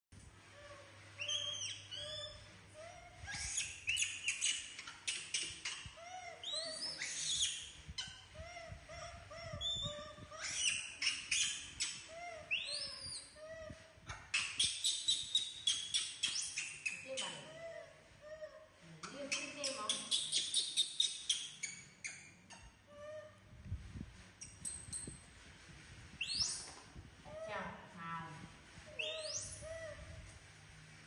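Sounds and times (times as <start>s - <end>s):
monkey coos and squeals: 0.6s - 18.6s, 28.9s - 30.2s.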